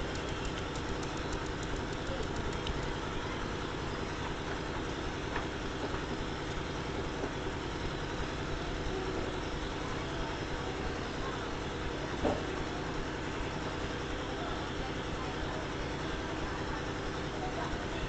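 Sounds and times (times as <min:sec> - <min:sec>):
faint clicks: 0:00.0 - 0:03.0.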